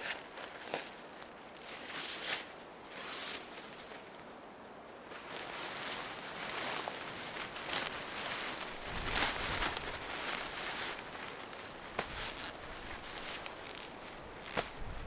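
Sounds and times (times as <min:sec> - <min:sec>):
tarp fabric rustling on heather: 0:00.0 - 0:15.0.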